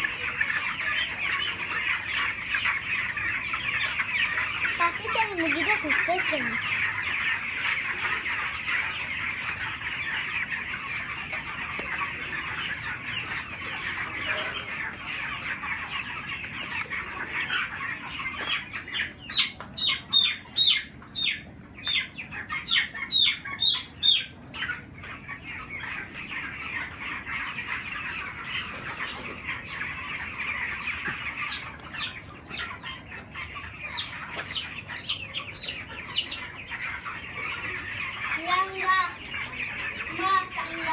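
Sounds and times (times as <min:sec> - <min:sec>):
chicks peeping and chirping: 0:00.0 - 0:40.9
loud falling chick peeps: 0:07.2 - 0:38.2.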